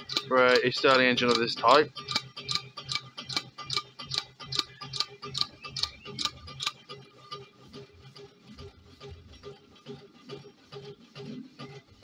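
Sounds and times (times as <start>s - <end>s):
engine mechanical ticking: 0.0s - 7.0s.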